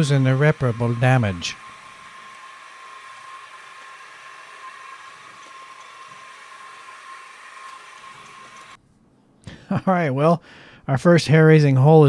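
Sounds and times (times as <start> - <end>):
milling machine whining: 0.0 - 8.8.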